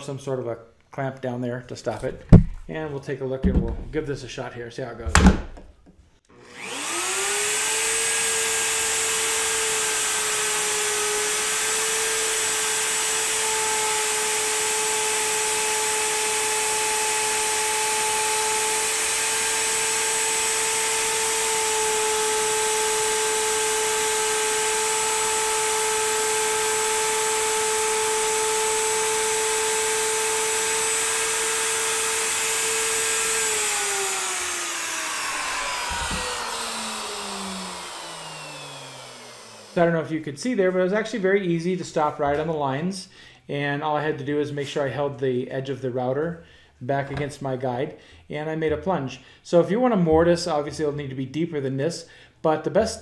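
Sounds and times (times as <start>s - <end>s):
router motor whine: 6.3s - 39.9s
router cutting wood: 6.3s - 40.1s.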